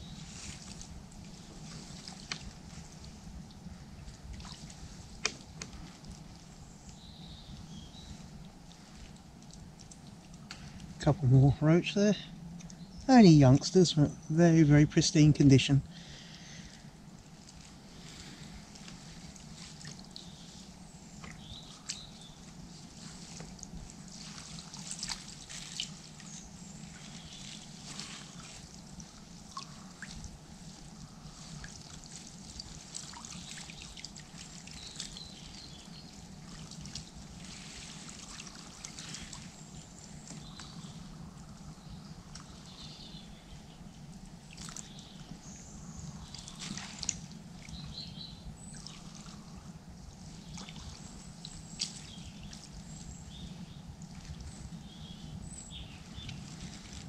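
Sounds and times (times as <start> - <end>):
small splashes: 4.3 - 6.4, 16.6 - 40.8, 44.4 - 45.0, 46.2 - 47.9, 48.6 - 53.1
water trickling and dripping: 7.6 - 11.0, 18.6 - 41.0, 46.2 - 48.0, 48.6 - 53.2.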